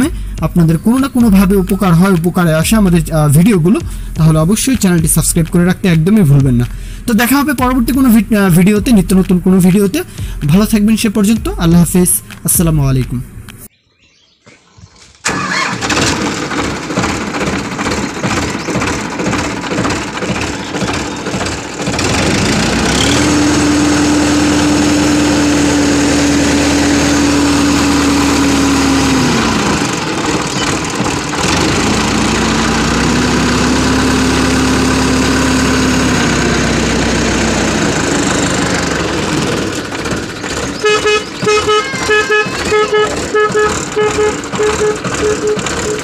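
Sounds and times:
diesel tractor engine revving: 0.0 - 13.7, 15.2 - 46.0.

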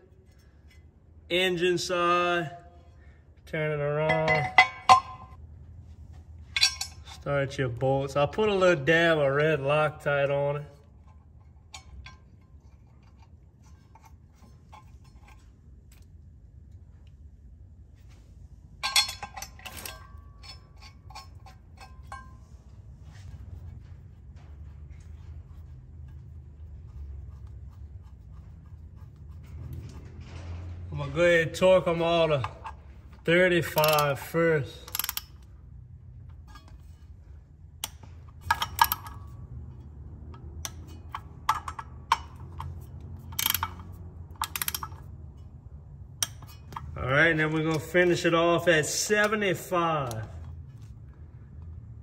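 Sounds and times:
low steady hum: 0.0 - 52.0
metal bolts clinking: 4.0 - 5.4, 6.4 - 7.4, 8.1 - 16.2, 18.7 - 23.3, 29.4 - 50.9
torque wrench ratcheting clicks: 33.6 - 35.5, 37.8 - 39.2, 40.6 - 45.1.

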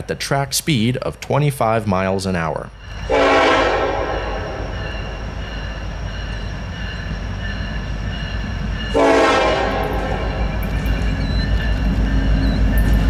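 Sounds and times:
diesel train rumbling: 0.0 - 13.0
locomotive air horn blast: 3.1 - 4.6, 8.9 - 10.4.

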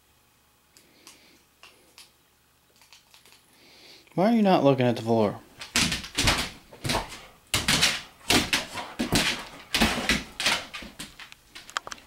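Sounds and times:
dog claws scrabbling on tile: 2.7 - 3.4, 5.6 - 12.0.

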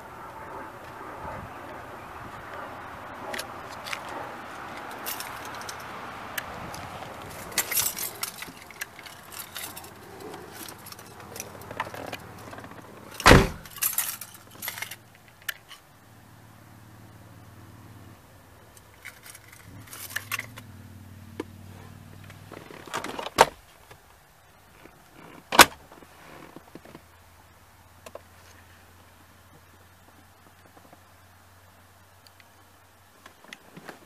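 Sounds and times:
clicks and rattles in car cabin: 6.7 - 15.8, 24.8 - 27.0
loud thump: 13.2 - 13.7.

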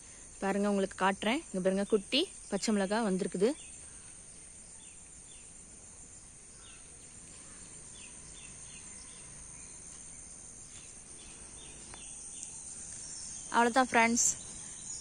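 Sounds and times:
high-pitched insect drone: 7.4 - 15.0.

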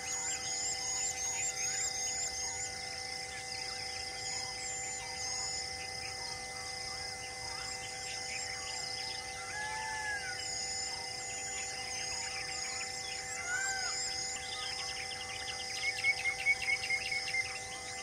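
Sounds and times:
high drone of insects: 0.0 - 18.0
birds chirping and calling: 7.4 - 18.0.

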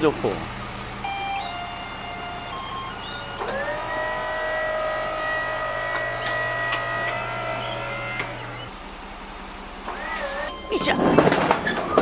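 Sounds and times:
electric motor whine: 0.8 - 8.8.

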